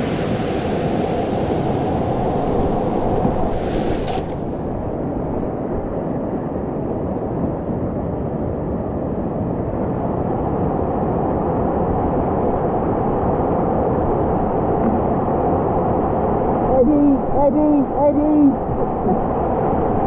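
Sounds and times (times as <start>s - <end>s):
whitewater rushing: 0.0s - 4.9s.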